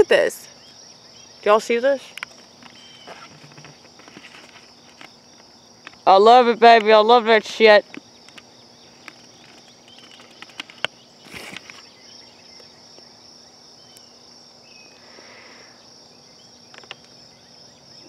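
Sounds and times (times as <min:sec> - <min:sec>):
night insects chorus: 0:00.0 - 0:18.0
brief rustle: 0:02.1 - 0:05.1, 0:09.0 - 0:11.9.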